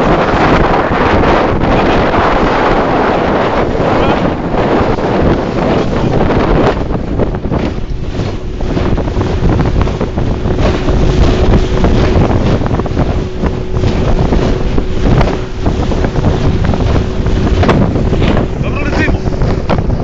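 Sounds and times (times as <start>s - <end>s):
wind buffeting microphone: 0.0s - 20.0s
steady low hum: 8.4s - 20.0s.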